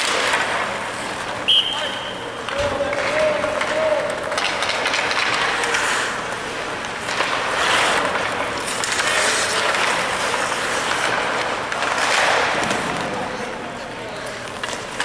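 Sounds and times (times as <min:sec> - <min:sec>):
skate blades scraping ice: 0:00.0 - 0:13.6.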